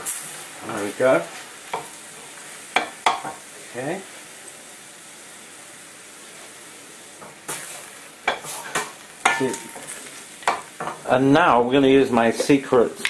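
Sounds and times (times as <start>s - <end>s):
chicken sizzling in a frying pan: 0.0s - 13.0s.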